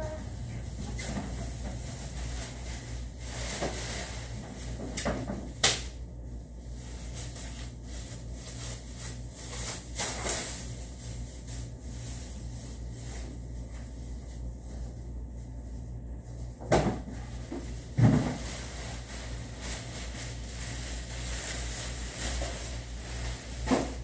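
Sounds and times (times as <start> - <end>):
steady low hum: 0.0 - 24.0
objects knocking and rustling on desk: 16.6 - 18.4.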